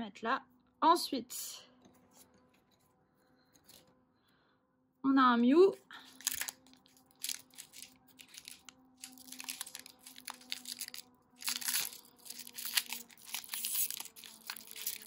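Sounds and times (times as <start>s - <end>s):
foil wrapper tearing and crinkling: 6.1s - 15.0s.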